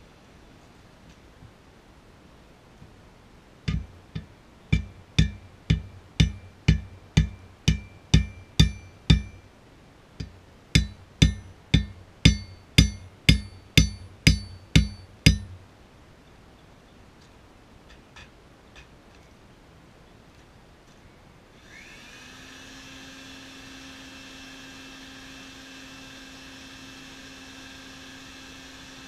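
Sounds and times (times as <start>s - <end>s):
hammer ringing on hot metal: 3.7s - 9.5s, 10.2s - 15.6s.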